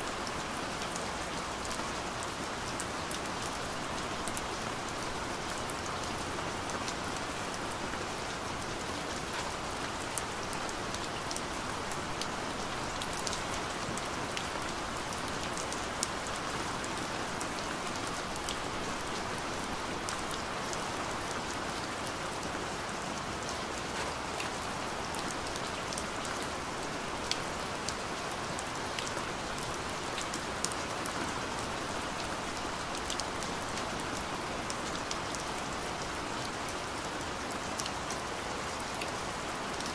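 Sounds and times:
rain on wet tarmac: 0.0 - 39.9.

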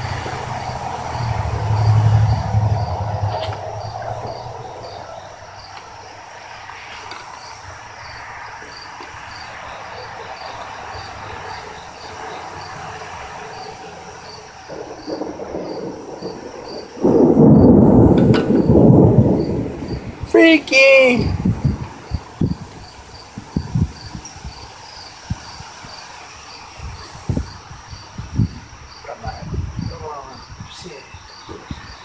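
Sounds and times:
thunder rumbling: 0.0 - 8.5, 9.2 - 26.0
crickets chirping: 0.0 - 32.0
road traffic hiss: 0.0 - 32.0.

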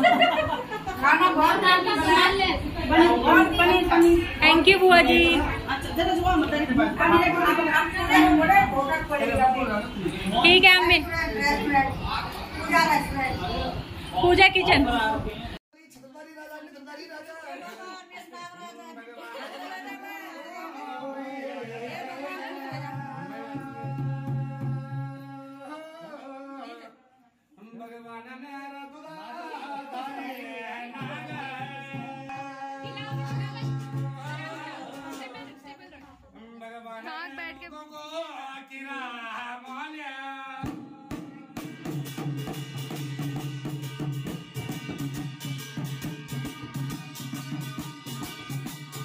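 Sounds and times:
drum beaten with a stick: 22.7 - 25.3, 31.0 - 35.2, 40.6 - 49.0
barrel drum beaten fast: 31.0 - 34.6.

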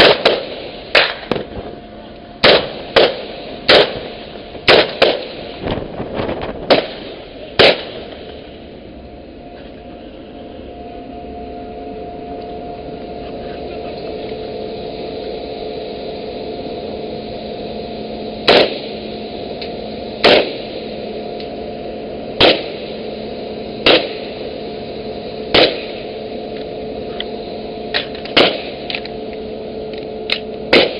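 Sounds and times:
gunshots: 0.0 - 1.6, 2.4 - 4.0, 4.7 - 5.4, 6.7 - 8.2, 18.5 - 18.9, 20.2 - 20.6, 22.4 - 22.8, 23.8 - 24.2, 25.5 - 25.9, 28.4 - 28.8
ship engines droning: 0.0 - 30.9.

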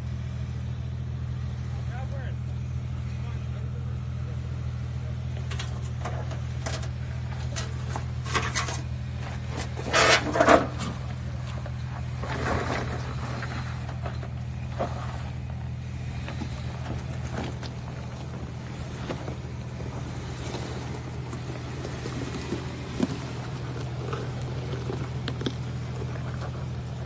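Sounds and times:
car engine running at low revs: 0.0 - 27.0
rocks crunching under tyres: 5.4 - 27.0.

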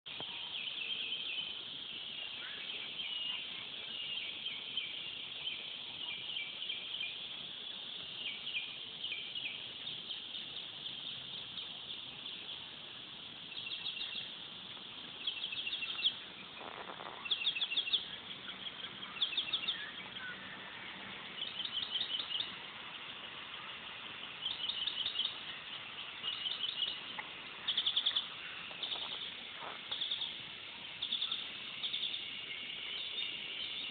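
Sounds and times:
low rush of noise: 0.1 - 33.9
high-pitched chirping trills: 15.2 - 20.6, 21.3 - 33.9.

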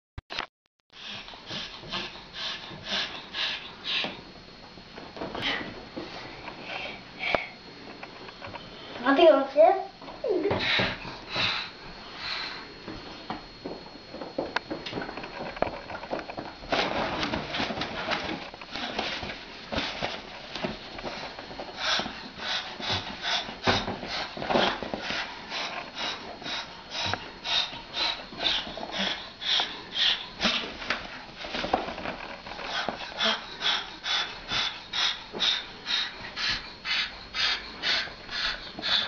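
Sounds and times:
cockatoo hissing huffs: 32.7 - 39.0.

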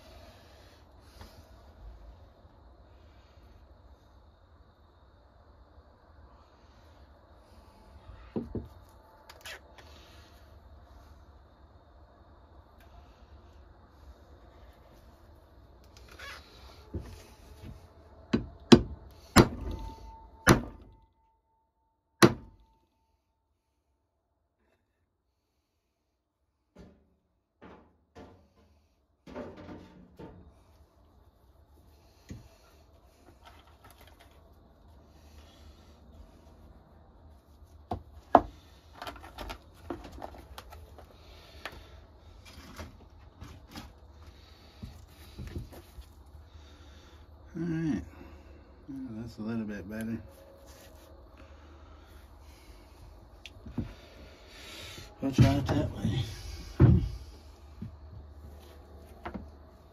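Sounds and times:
faint steady ring: 19.7 - 23.6
objects knocking on workbench: 27.6 - 28.4.

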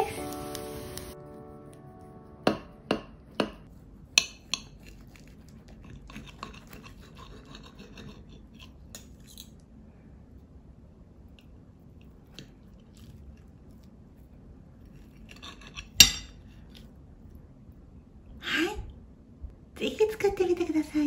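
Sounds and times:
knife and fork scraping plate: 4.2 - 9.5, 15.1 - 16.4.

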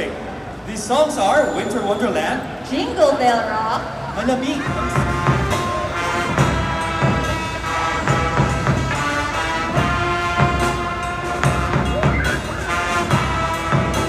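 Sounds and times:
brass band playing: 4.3 - 14.0
drum beat: 4.7 - 14.0.

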